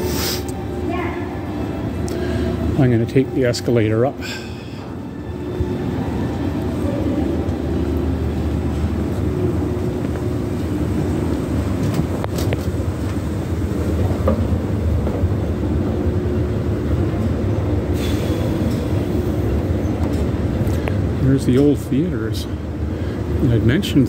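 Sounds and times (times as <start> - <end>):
brief hiss: 0.0 - 0.6
escalator rumbling: 0.0 - 24.0.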